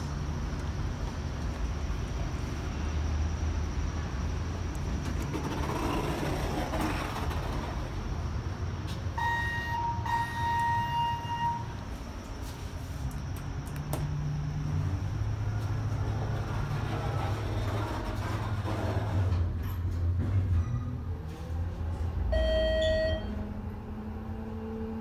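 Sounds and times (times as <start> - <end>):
elevator hum: 0.0 - 25.0
elevator doors opening: 8.9 - 11.9, 22.2 - 23.6
electronic beep: 22.4 - 23.4.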